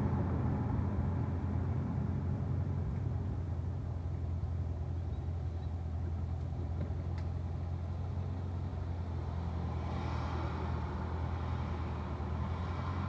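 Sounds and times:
car engine idling: 0.0s - 9.2s.

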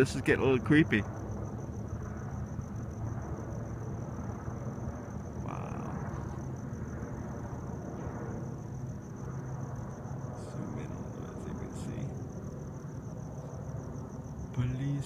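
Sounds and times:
distant helicopter drone: 0.0s - 15.0s
night insects chirping: 0.0s - 15.0s.

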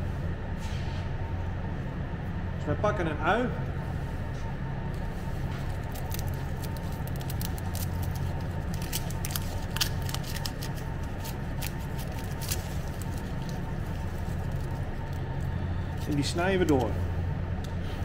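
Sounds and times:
steady low hum: 0.0s - 18.0s
onion skin crackling: 5.6s - 17.0s.

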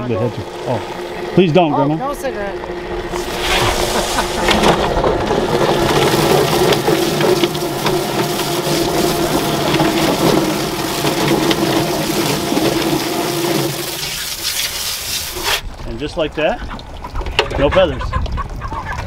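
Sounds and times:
electric motor humming: 0.0s - 14.4s
hose spraying water: 3.1s - 15.7s.

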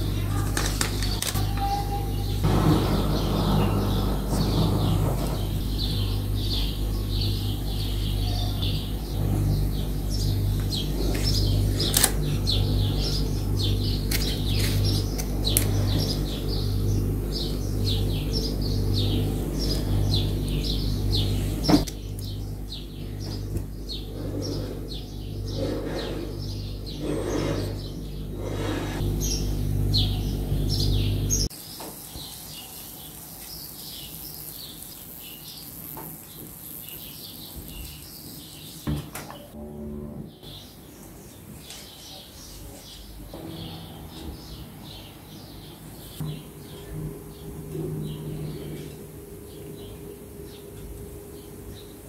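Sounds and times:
pulsing low hum: 0.0s - 31.5s, 38.9s - 40.7s
birds chirping: 0.0s - 52.0s.

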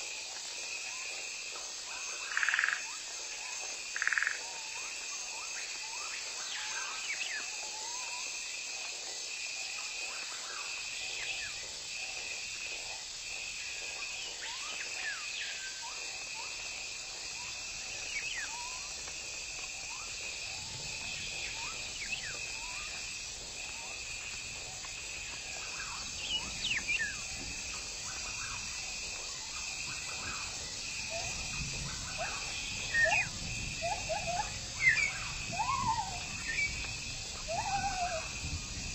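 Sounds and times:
insect chorus with high buzz: 0.0s - 38.9s.

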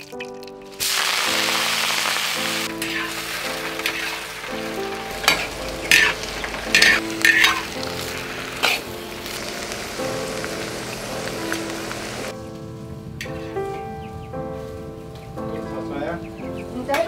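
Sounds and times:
greens sizzling in a wok: 0.0s - 12.4s
metal spatula scraping a wok: 2.8s - 4.4s, 5.1s - 8.9s.

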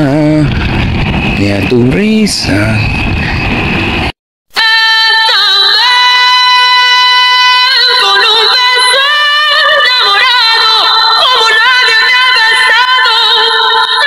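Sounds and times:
high-pitched singing with vibrato: 4.5s - 14.0s.

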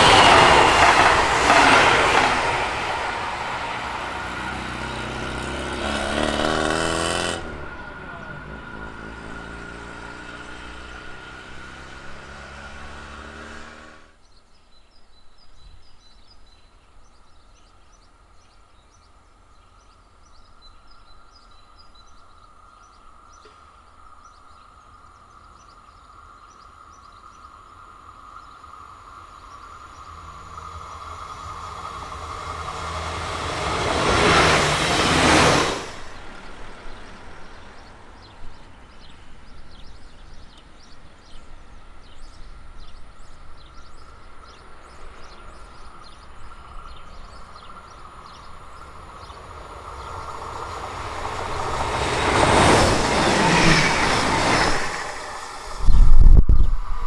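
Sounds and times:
train passing at speed: 0.0s - 14.2s, 27.9s - 57.0s
birds chirping: 28.3s - 56.9s.

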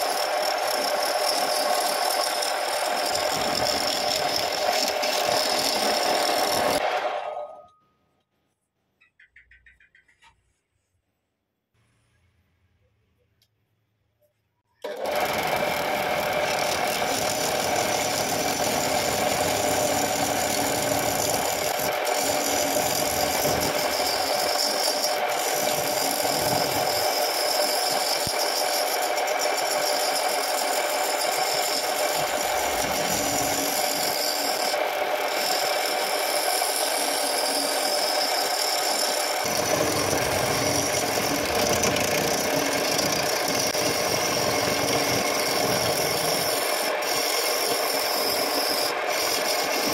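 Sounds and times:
wood lathe running: 0.0s - 7.4s, 14.8s - 49.9s
chisel cutting spinning wood: 0.0s - 7.5s, 14.8s - 49.9s.

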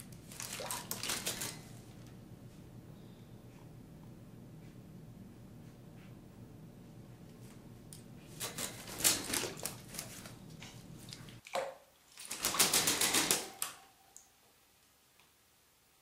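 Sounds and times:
parrot wings splashing water: 0.1s - 1.8s, 8.4s - 10.4s, 11.0s - 13.7s.

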